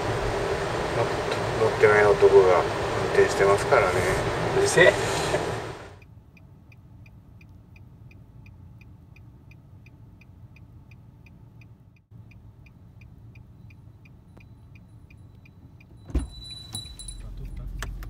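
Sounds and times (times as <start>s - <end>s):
idling car hum: 0.0s - 18.0s
car indicator ticking: 6.0s - 16.0s, 17.0s - 18.0s.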